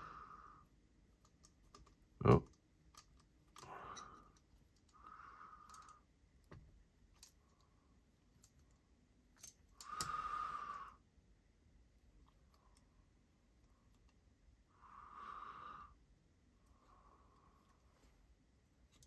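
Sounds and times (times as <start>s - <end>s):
small clicks of knife parts: 5.6s - 7.7s, 9.4s - 10.2s
breathy hisses: 9.8s - 11.0s.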